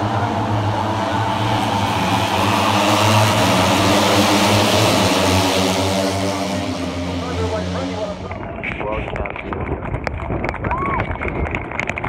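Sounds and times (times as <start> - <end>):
racing motorcycles accelerating: 0.0 - 9.5.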